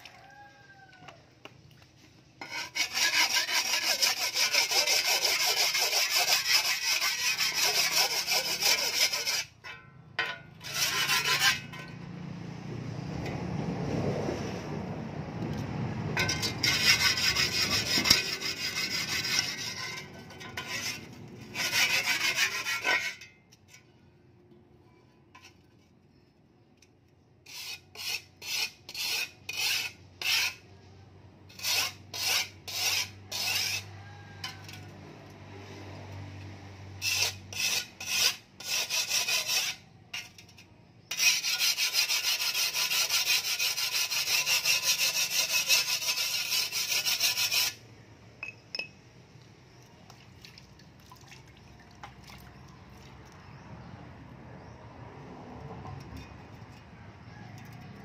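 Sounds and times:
file rasping on steel blade: 0:02.4 - 0:09.6, 0:10.3 - 0:12.1, 0:16.2 - 0:23.4, 0:27.4 - 0:30.7, 0:31.5 - 0:35.0, 0:37.0 - 0:47.8.

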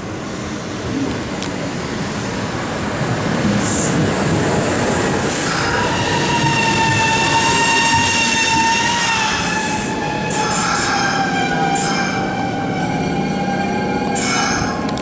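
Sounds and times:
train high whine: 0:00.0 - 0:15.0
electric train running noise: 0:03.4 - 0:15.0.

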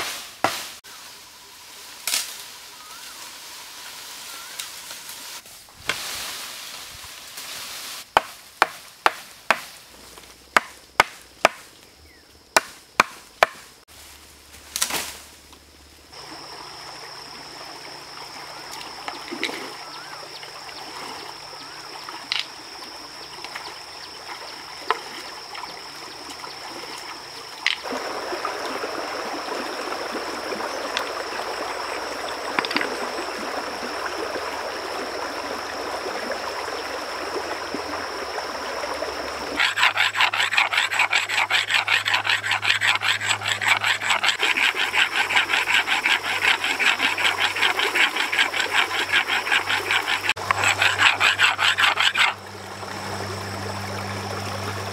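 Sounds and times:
stream water running: 0:00.0 - 0:13.9, 0:15.2 - 0:54.9
stone blade rasping on boulder: 0:39.6 - 0:52.4.

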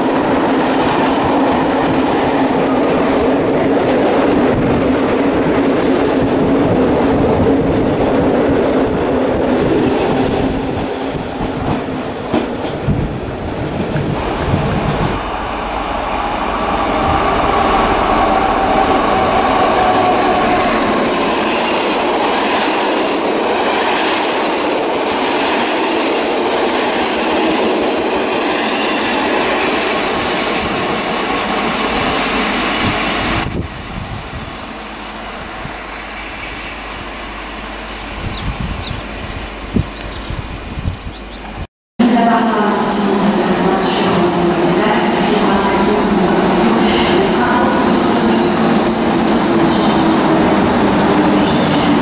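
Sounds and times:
train approaching rumble: 0:00.0 - 0:52.0
train passing at speed: 0:00.0 - 0:52.0
high sustained squeal: 0:14.1 - 0:22.5.

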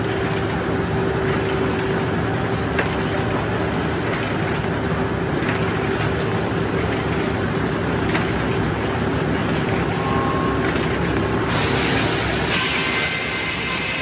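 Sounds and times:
mill machinery running: 0:00.0 - 0:14.0.

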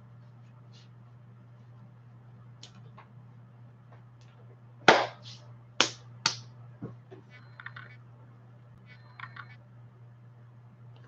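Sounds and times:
sharp hand claps: 0:05.8 - 0:06.5.

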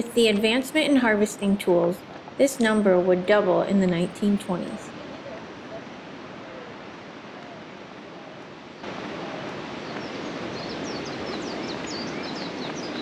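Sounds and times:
river rushing: 0:00.0 - 0:13.0
surf: 0:00.0 - 0:13.0
bird chirping: 0:09.3 - 0:13.0.

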